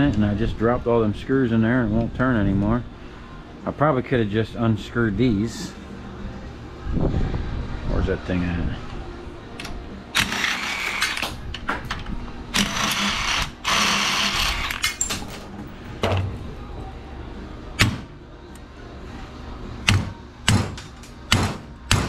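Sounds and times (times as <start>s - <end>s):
metal tools clattering: 14.8s - 15.7s.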